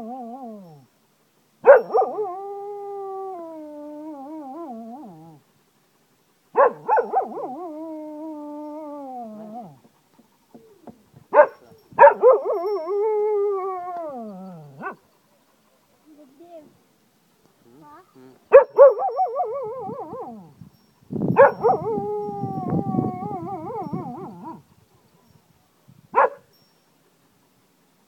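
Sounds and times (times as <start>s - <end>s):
dog yelping: 6.6s - 7.7s
dog howling: 18.6s - 20.5s, 21.5s - 24.6s.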